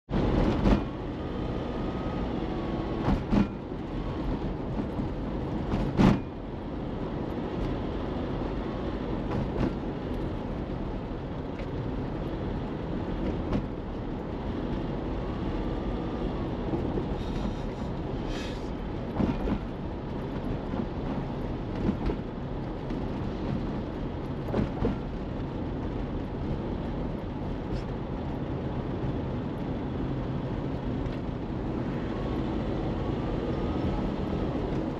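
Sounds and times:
car engine and tyre noise: 0.0 - 34.9.

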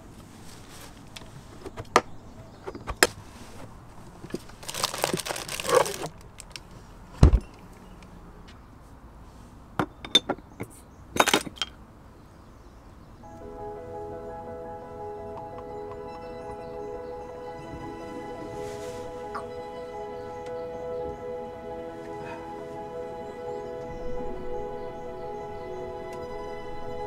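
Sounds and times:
rustling scrape: 0.1 - 1.8, 3.1 - 6.9, 18.0 - 19.5
soft music: 13.2 - 27.0.

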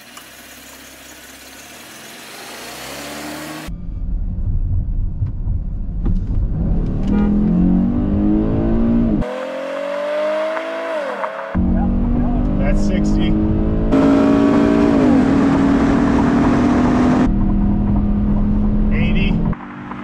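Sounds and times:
car engine accelerating hard: 2.1 - 3.8, 6.3 - 20.0.

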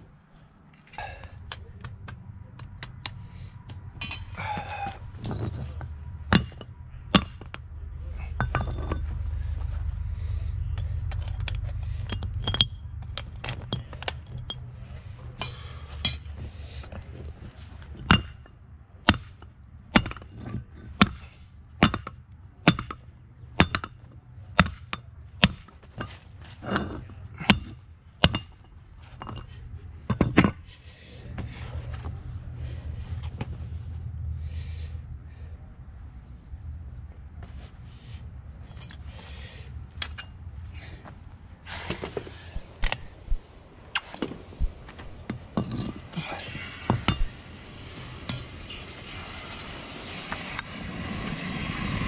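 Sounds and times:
metal clanks: 1.0 - 17.0, 17.8 - 30.8, 43.9 - 48.9.

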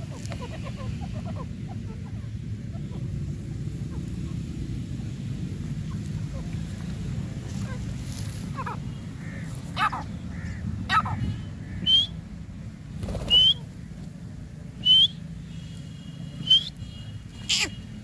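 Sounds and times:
francolin whistled calls: 11.8 - 12.2, 13.3 - 13.6, 14.8 - 15.2, 16.4 - 17.0.

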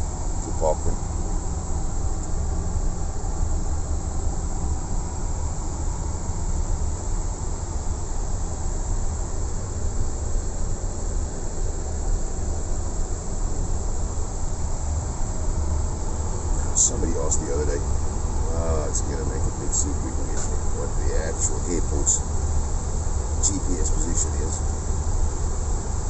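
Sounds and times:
cockpit airflow rumble and hiss: 0.0 - 26.0.

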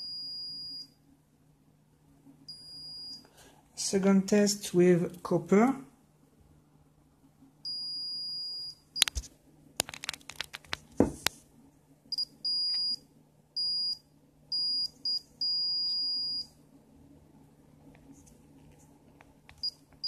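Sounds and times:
multimeter beeping: 7.7 - 9.2, 12.1 - 13.0, 13.6 - 16.5.

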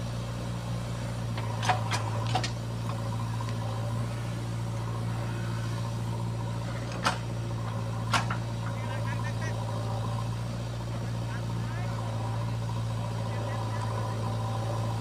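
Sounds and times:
diesel engine running: 0.0 - 15.0
sharp knocks from machine: 8.0 - 8.4.

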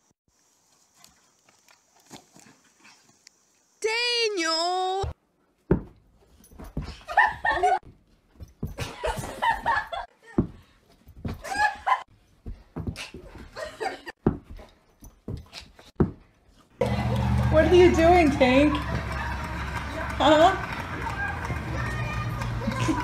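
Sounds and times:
person laughing: 22.6 - 23.0.

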